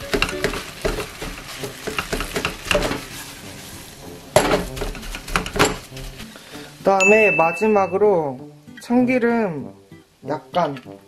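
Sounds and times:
metal spoon scraping frying pan: 0.0s - 3.6s, 4.4s - 6.3s.

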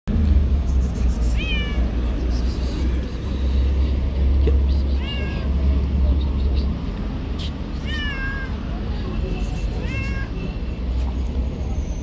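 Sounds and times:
steady low rumble: 0.1s - 10.2s
cat meowing: 1.3s - 2.0s, 5.0s - 5.5s, 7.8s - 8.6s, 9.8s - 10.4s.

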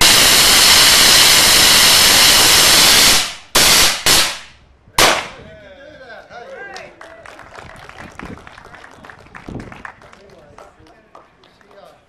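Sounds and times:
rocket thruster firing: 0.0s - 5.4s.

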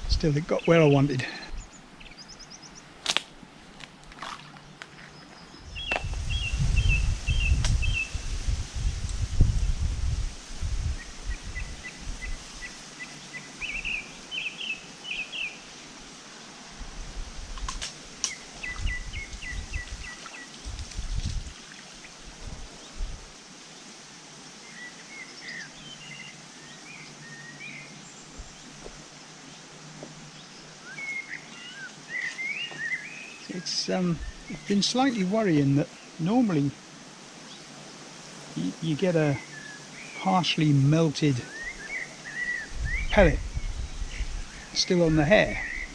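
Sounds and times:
songbirds chirping: 0.0s - 45.9s
low rumbling buffets: 5.6s - 12.4s, 40.4s - 45.9s.

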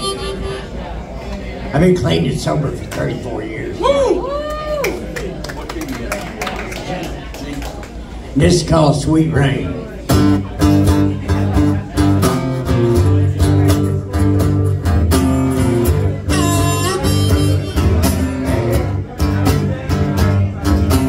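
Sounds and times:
harmonica: 0.0s - 1.0s, 14.9s - 18.9s
strummed acoustic guitar: 10.0s - 21.0s.

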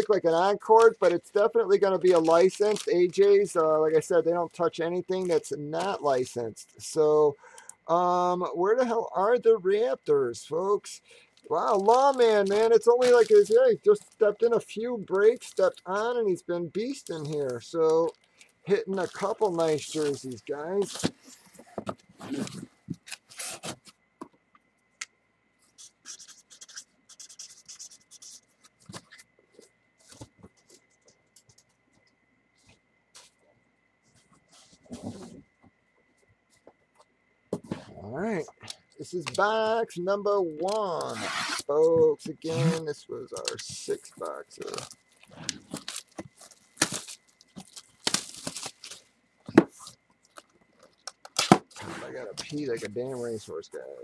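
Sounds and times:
plastic and cardboard rustling: 0.0s - 3.3s, 11.4s - 14.4s, 16.8s - 23.9s, 25.7s - 31.6s, 34.0s - 35.5s, 40.6s - 53.4s.

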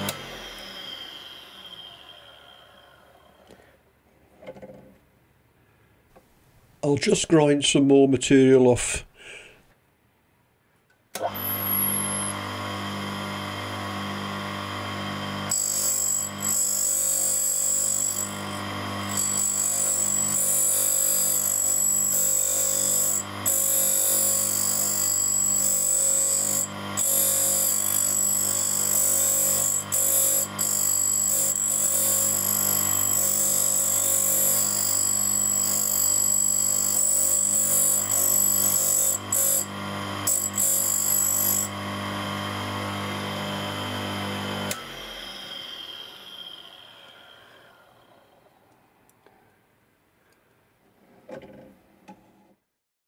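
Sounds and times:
grinding wheel motor hum: 0.0s - 3.6s, 11.2s - 48.6s.

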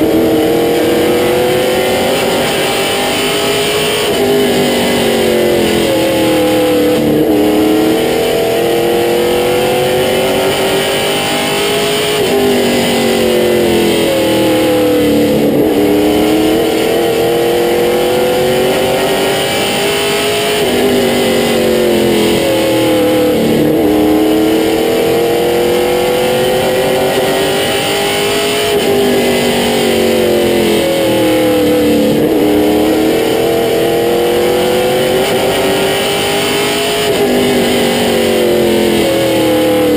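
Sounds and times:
race car engine accelerating: 0.0s - 39.9s
wind and road noise: 0.0s - 39.9s.

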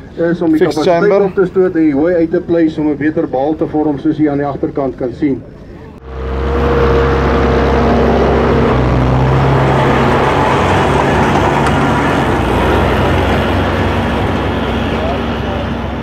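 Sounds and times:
baler working: 6.0s - 16.0s
tractor engine under load: 6.0s - 16.0s.

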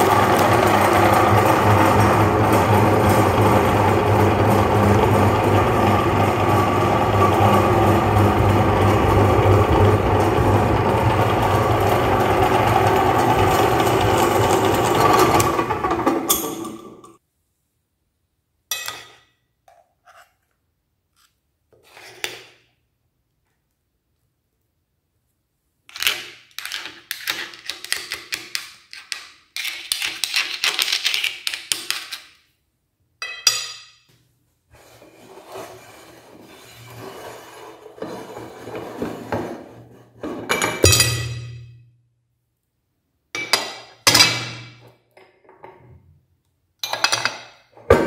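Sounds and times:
electric meat grinder running: 0.0s - 17.0s
spoon and knife scraping metal: 20.0s - 20.5s, 21.2s - 22.4s.

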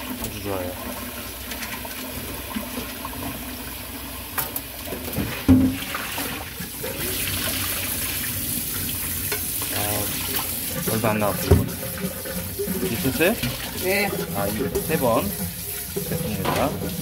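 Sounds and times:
water poured into a sink: 0.0s - 17.0s
tap running into a metal pot: 4.4s - 5.9s, 9.2s - 17.0s.

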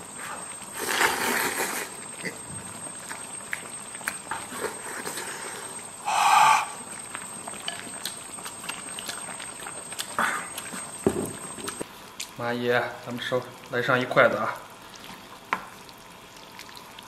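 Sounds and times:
person slurping food: 0.8s - 2.0s
chewing with smacking clicks: 3.0s - 4.3s, 7.1s - 11.0s, 11.6s - 12.4s.

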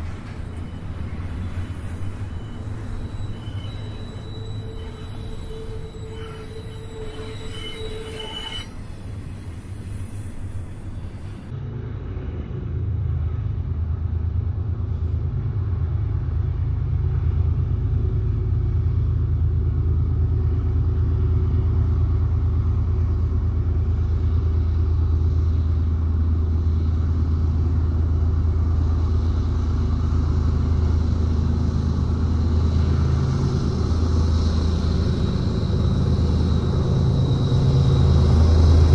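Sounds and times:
high wheel squeal: 0.0s - 11.5s
freight train wheels rumbling: 0.0s - 38.9s.

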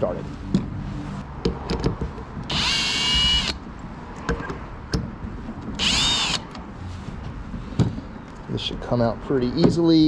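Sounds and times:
cordless drill whining: 2.5s - 3.6s, 5.8s - 6.5s.

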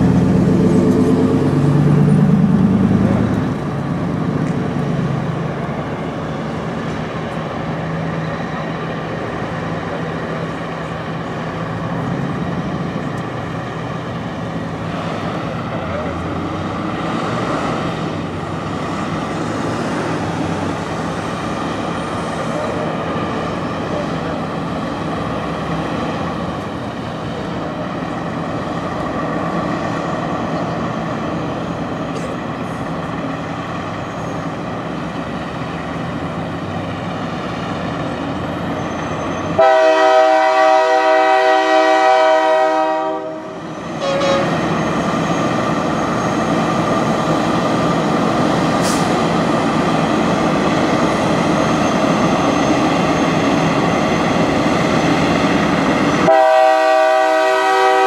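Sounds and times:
diesel truck engines running: 0.0s - 39.7s, 43.4s - 56.4s
truck train horn blowing: 39.5s - 44.6s, 56.2s - 58.0s.

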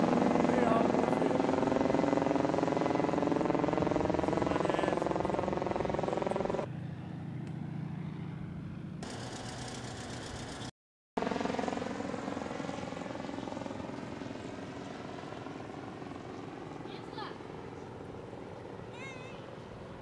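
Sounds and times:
propeller airplane droning: 0.0s - 20.0s.

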